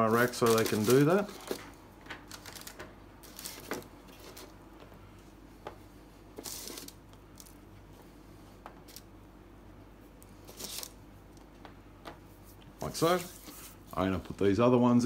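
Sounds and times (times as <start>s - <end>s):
paper rustling scrape: 0.1s - 4.5s, 6.4s - 7.0s, 10.4s - 11.0s, 12.8s - 14.0s.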